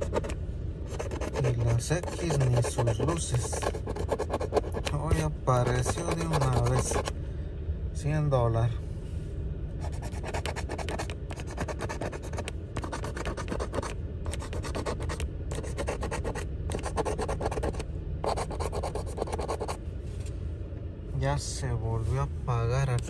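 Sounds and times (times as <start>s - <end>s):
coin scratching lottery ticket: 0.0s - 7.1s, 9.8s - 19.8s.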